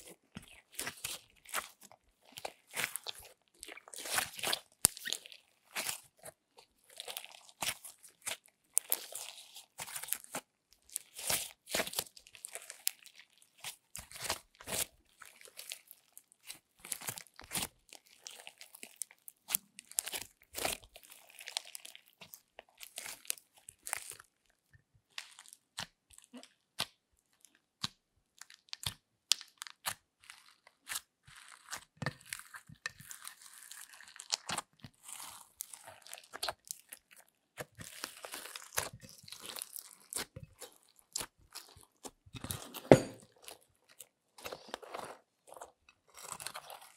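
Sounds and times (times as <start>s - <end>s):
slime crackling and popping: 0.5s - 24.4s, 27.7s - 42.6s, 43.4s - 46.9s.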